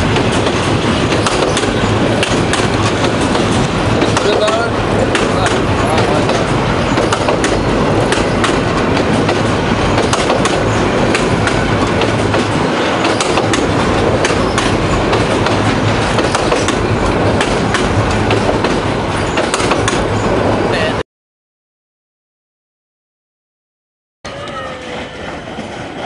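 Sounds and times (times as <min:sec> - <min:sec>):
wheels clicking over rail joints: 0:00.0 - 0:20.0
train wheels rumbling on rails: 0:00.0 - 0:21.0, 0:24.3 - 0:26.0.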